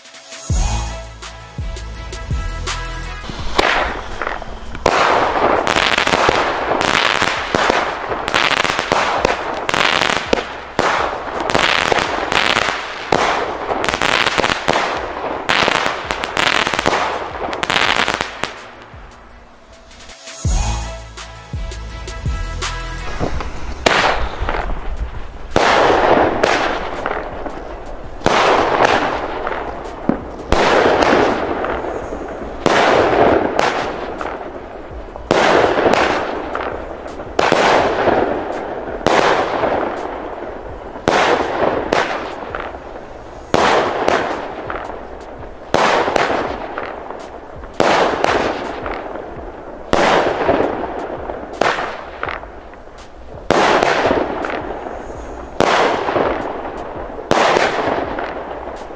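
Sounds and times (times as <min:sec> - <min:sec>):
firework battery shots: 0:02.6 - 0:20.9, 0:22.6 - 0:58.9.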